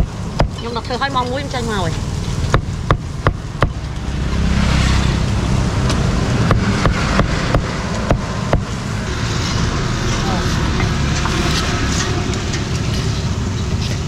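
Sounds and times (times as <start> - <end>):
low traffic rumble: 0.0 - 14.0.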